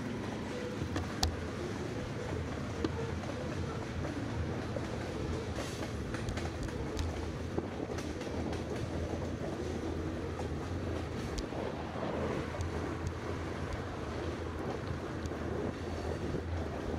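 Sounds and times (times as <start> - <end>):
wind on microphone: 3.9 - 16.9.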